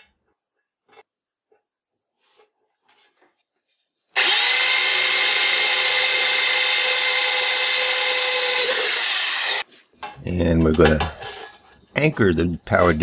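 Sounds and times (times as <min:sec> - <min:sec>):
electric drill whining through metal: 0:04.2 - 0:09.7.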